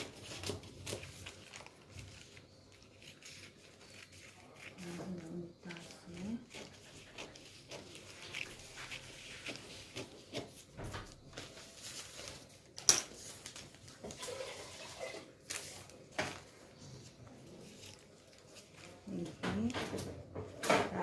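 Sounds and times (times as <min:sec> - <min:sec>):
scissors snipping newspaper: 0:00.0 - 0:14.2, 0:17.4 - 0:20.1
paper rustling: 0:00.0 - 0:20.6.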